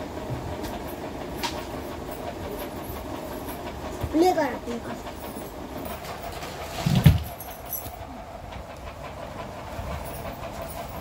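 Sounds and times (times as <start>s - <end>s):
electric table fan whirring: 0.0s - 11.0s.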